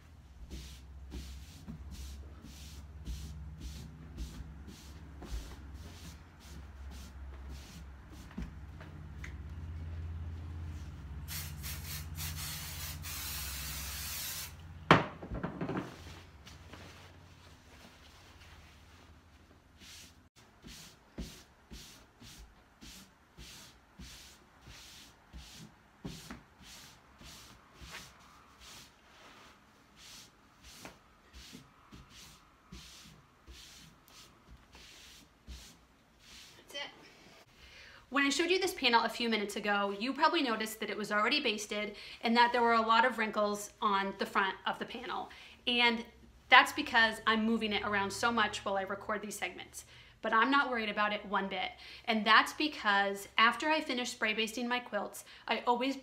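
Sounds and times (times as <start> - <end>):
aerosol can spraying: 11.3 - 14.6
hands swishing over fabric: 15.9 - 36.7.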